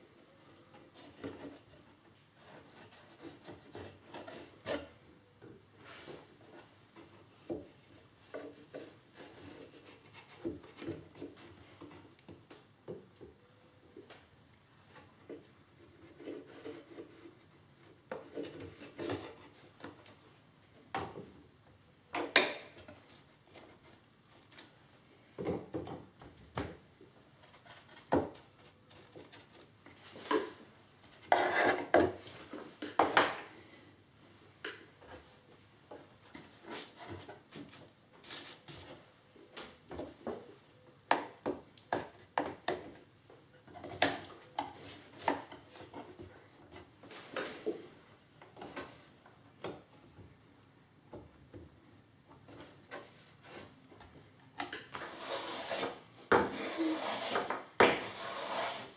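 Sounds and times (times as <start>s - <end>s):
short scrapes: 55.0s - 58.9s.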